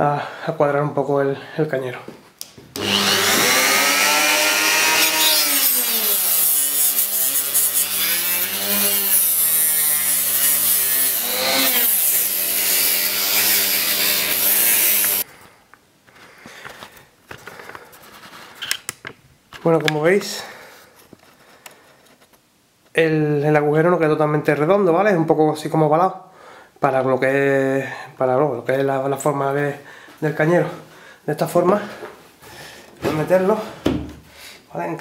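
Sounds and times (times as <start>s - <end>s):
rotary tool grinding plastic: 2.8s - 15.2s.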